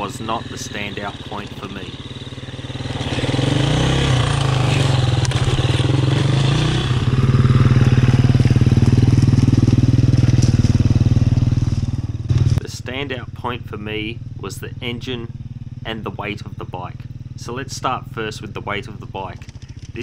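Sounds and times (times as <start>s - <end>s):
dirt bike engine running: 0.0s - 20.0s.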